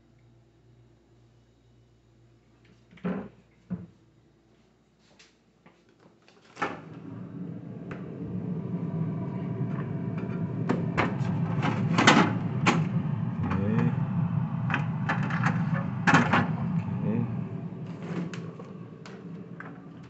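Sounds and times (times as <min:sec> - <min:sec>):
steady low hum: 0:06.8 - 0:20.0.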